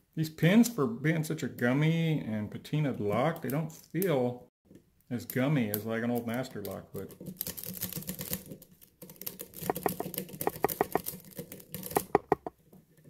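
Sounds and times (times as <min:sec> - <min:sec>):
lock pick clicking and scraping: 0:09.0 - 0:12.5.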